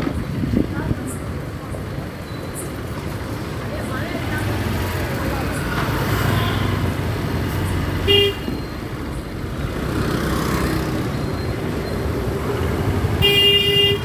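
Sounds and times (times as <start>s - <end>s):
street traffic hum: 0.0s - 14.0s
vehicle horn honking: 8.0s - 8.5s, 13.2s - 14.0s.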